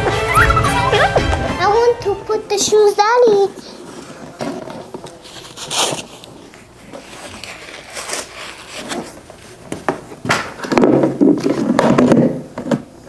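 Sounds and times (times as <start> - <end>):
toy parts and packaging rustling: 2.7 - 9.6.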